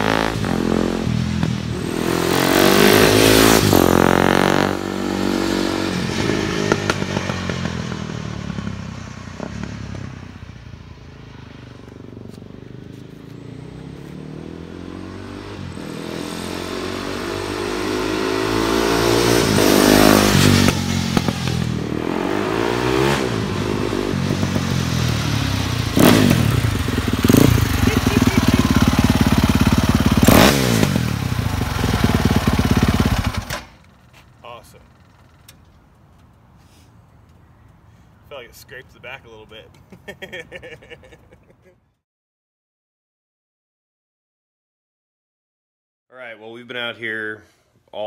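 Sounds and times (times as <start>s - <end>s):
dirt bike engine revving: 0.0s - 8.8s, 13.2s - 33.7s.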